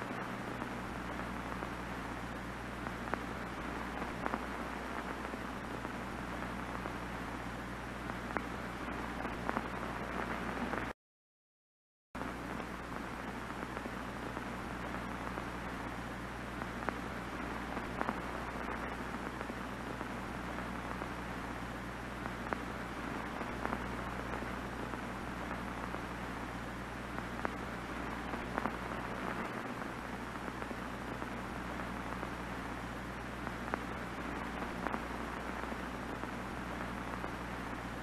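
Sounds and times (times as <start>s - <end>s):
faint crackles: 0.0s - 10.9s, 12.2s - 38.0s
television static hiss: 0.0s - 11.0s, 12.2s - 38.0s.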